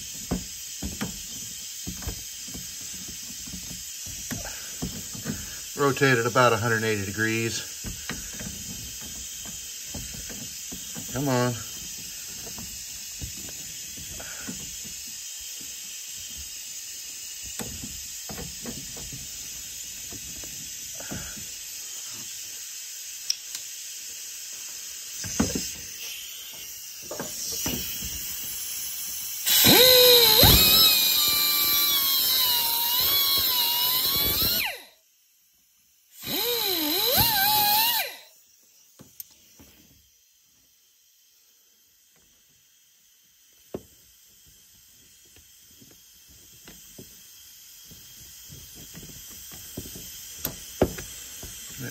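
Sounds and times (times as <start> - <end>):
cutoff tool grinding metal: 29.4 - 34.8, 36.2 - 38.2.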